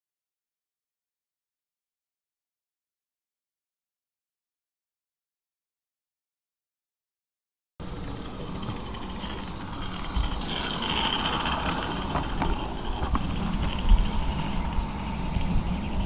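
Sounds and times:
low uneven rumble: 7.8 - 16.0
wheels clicking on track: 7.8 - 16.0.

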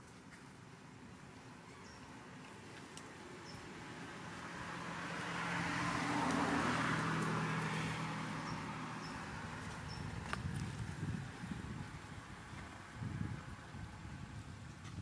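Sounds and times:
motor vehicle passing by: 2.7 - 14.4.

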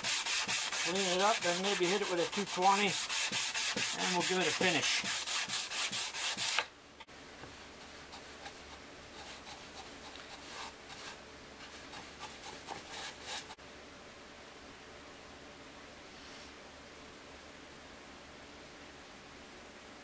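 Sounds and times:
paintbrush brushing on wood: 0.0 - 6.6, 7.4 - 13.6
sanding wood by hand: 0.0 - 6.7, 7.8 - 13.6.

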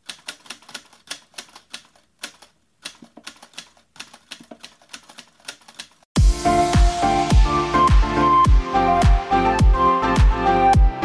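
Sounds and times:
typewriter key clicks: 0.0 - 6.0.

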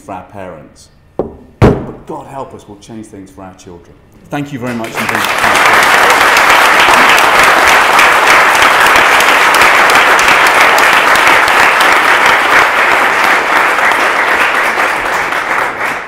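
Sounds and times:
audience applauding: 4.6 - 16.0.

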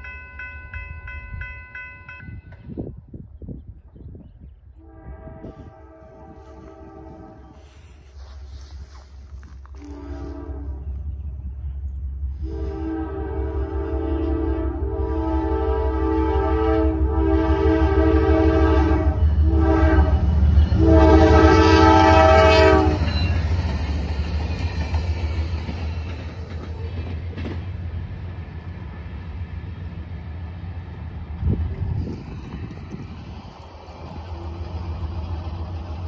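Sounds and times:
diesel locomotive rumble: 2.6 - 36.0
locomotive air horn blasts: 4.8 - 11.0, 12.3 - 23.4
train wheels on rails: 5.4 - 36.0.

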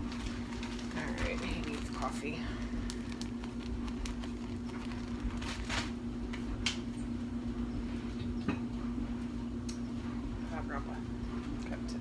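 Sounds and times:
food packaging rustling: 0.0 - 6.0
steady low hum: 0.0 - 12.0.

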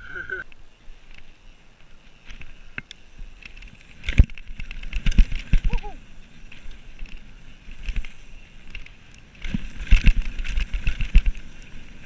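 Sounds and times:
mountain bike rolling on dirt: 0.0 - 12.0
bike knocks and clatter: 2.2 - 5.9, 6.5 - 11.9.

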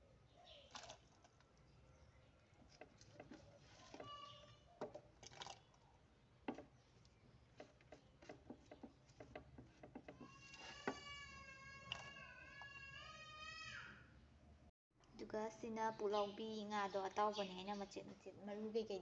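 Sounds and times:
faint clicks and taps: 6.4 - 11.0.

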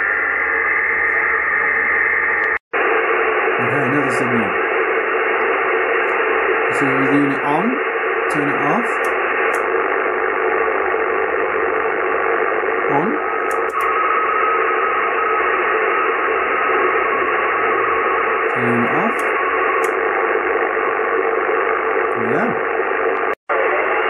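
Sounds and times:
radio interference hiss: 0.0 - 24.0
clicks: 9.0 - 9.8, 13.4 - 14.0, 19.1 - 20.1.

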